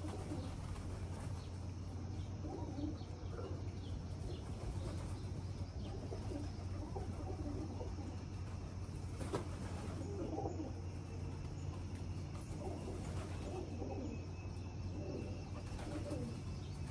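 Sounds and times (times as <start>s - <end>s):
pigeons cooing: 0.0s - 16.9s
faint small bird chirps: 9.3s - 16.9s.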